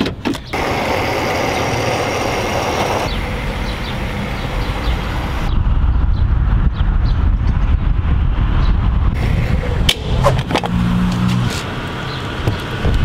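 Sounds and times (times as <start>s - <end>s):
road traffic: 0.0s - 13.0s
wind: 0.0s - 13.0s
fuel pumping through nozzle: 0.6s - 3.2s.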